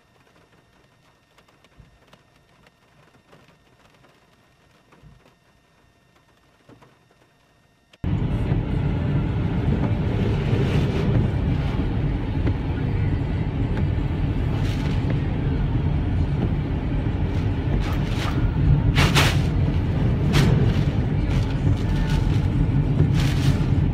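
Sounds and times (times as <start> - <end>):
car engine rumble: 8.0 - 23.9
windscreen wipers swishing: 8.0 - 23.9
tyres on wet road: 8.1 - 23.9
heavy rain: 8.2 - 23.9.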